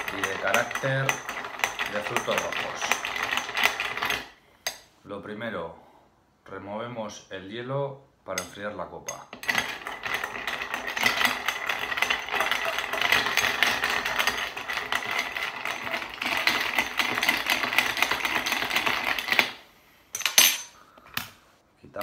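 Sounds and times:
spoon stirring ice in glass: 0:00.0 - 0:04.2, 0:09.4 - 0:19.5.

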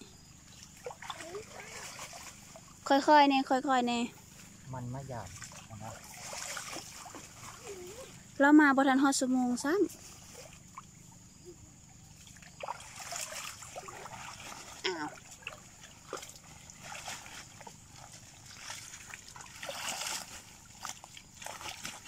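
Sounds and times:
stream water splashing: 0:00.2 - 0:03.3, 0:04.2 - 0:08.4, 0:09.5 - 0:22.0
plastic sheet shaken in water: 0:05.4 - 0:08.1, 0:15.6 - 0:22.0.

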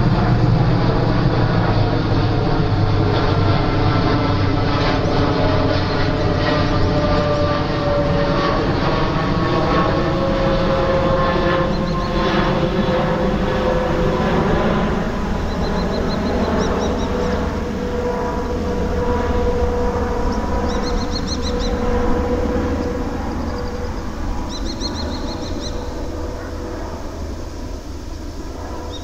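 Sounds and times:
jet engines rumbling: 0:00.0 - 0:29.0
small bird chirping: 0:11.7 - 0:12.2, 0:15.4 - 0:17.4, 0:20.4 - 0:21.8, 0:23.5 - 0:25.9.

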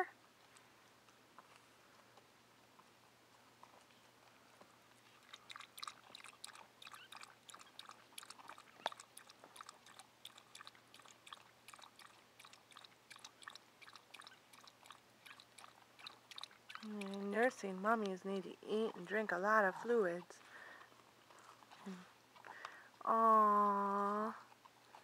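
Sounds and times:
dog lapping water: 0:05.1 - 0:17.8.

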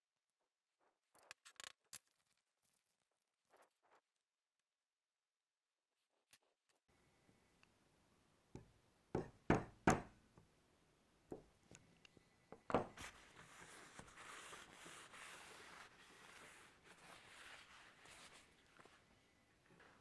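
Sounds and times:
cloth rubbing on wood: 0:13.0 - 0:19.0.

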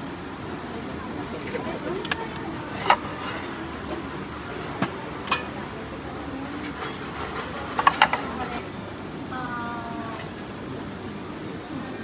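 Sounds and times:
wooden trays clacking together: 0:07.2 - 0:08.4.

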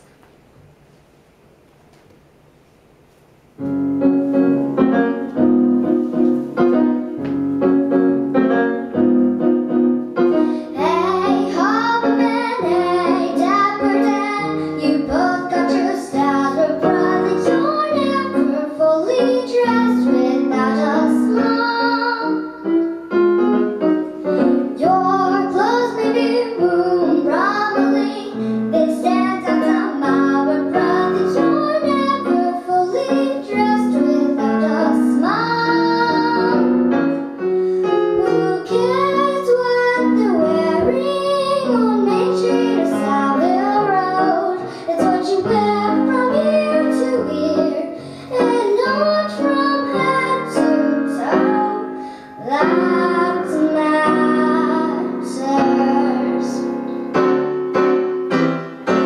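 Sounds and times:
piano accompaniment: 0:03.4 - 0:59.0
girl singing: 0:10.3 - 0:23.2, 0:24.3 - 0:57.0.

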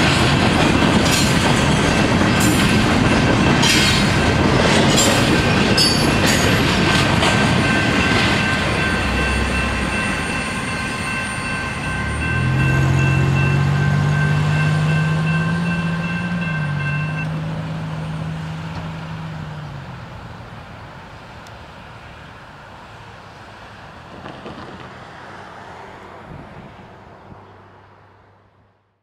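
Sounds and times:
freight train rolling on rails: 0:00.0 - 0:27.4
outdoor background noise: 0:00.0 - 0:29.0
high-pitched tones: 0:07.6 - 0:17.4.

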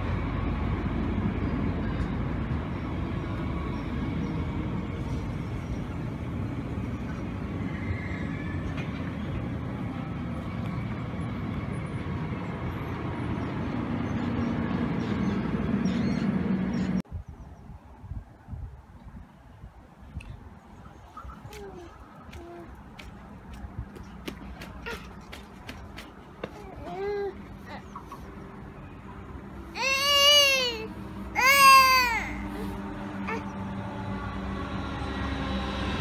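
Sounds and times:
train low hum: 0:00.0 - 0:17.2, 0:19.5 - 0:36.0.

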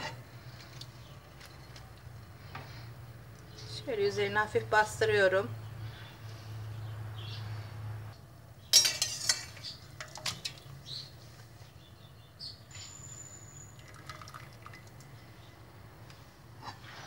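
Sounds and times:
metal skimmer clinking on pot: 0:08.7 - 0:10.7
water splashing and dripping: 0:09.8 - 0:10.8, 0:13.8 - 0:15.2.

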